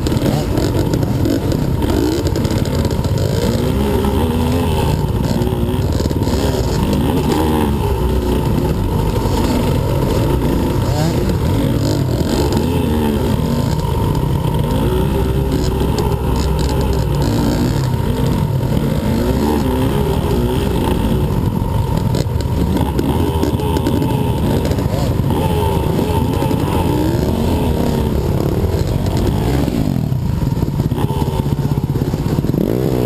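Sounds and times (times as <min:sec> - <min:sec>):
dirt bike engine revving: 0:00.0 - 0:33.0.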